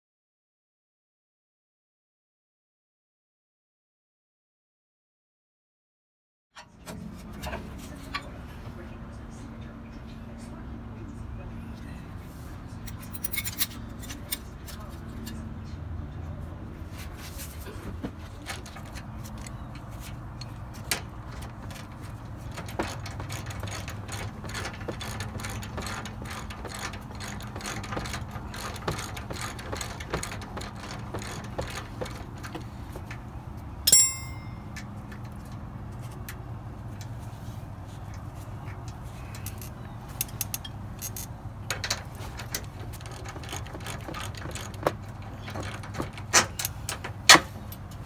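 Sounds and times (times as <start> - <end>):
ringing metallic clank: 33.9 - 34.8.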